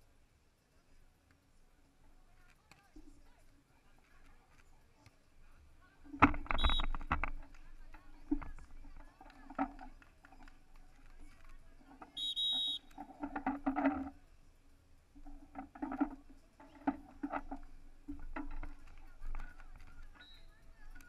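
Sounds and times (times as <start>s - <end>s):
indistinct voices: 0.8s - 21.0s
referee's whistle blast: 6.6s - 6.9s, 12.2s - 12.9s.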